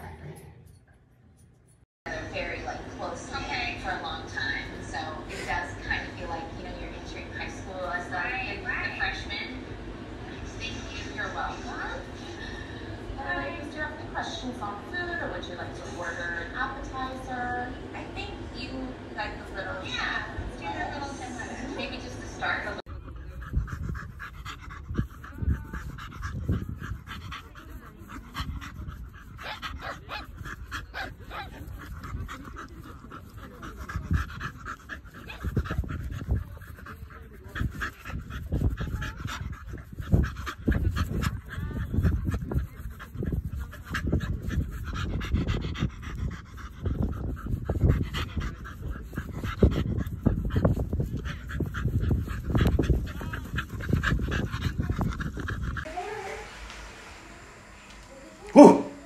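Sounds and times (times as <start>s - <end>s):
dog panting: 19.4s - 59.0s
low rumble: 49.5s - 59.0s.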